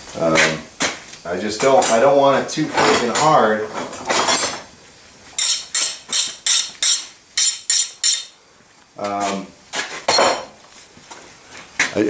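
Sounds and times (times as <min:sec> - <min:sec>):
metal rasping on steel blade: 0:05.4 - 0:08.3.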